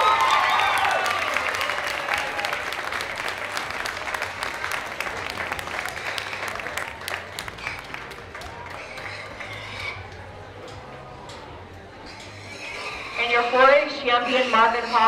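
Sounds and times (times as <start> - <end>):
crowd applauding: 0.0 - 10.2.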